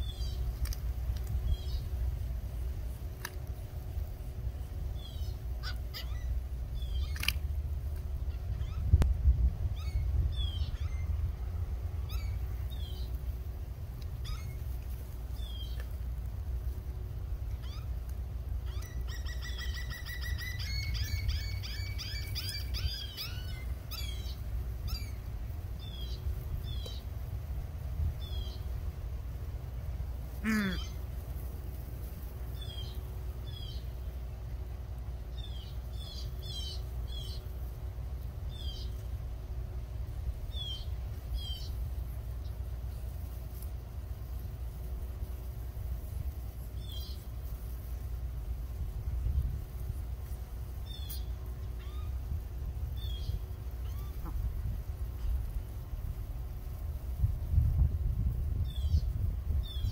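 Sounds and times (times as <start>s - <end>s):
birds chirping: 0.0s - 0.6s, 1.4s - 2.0s, 4.5s - 7.4s, 8.0s - 9.0s, 9.7s - 13.3s, 14.2s - 16.0s, 18.6s - 27.1s, 28.2s - 28.8s, 30.3s - 31.2s, 32.4s - 37.6s, 38.4s - 39.1s, 40.4s - 41.8s, 50.8s - 52.2s, 52.9s - 54.5s
steady low rumble: 0.0s - 59.9s.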